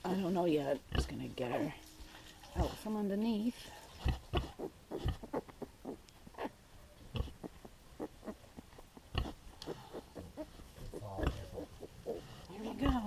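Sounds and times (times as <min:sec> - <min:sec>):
pig grunting: 0:04.0 - 0:08.5, 0:09.1 - 0:13.0.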